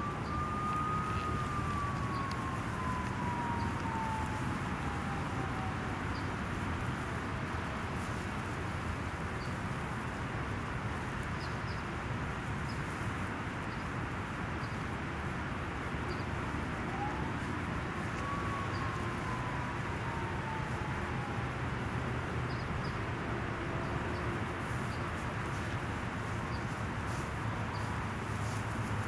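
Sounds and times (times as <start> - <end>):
outdoor background noise: 0.0 - 29.0.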